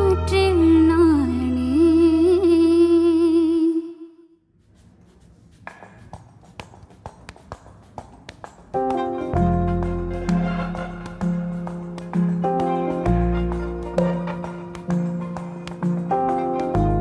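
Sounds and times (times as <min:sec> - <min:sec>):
woman singing: 0:00.0 - 0:04.3
keyboard chord and bass: 0:08.8 - 0:17.0.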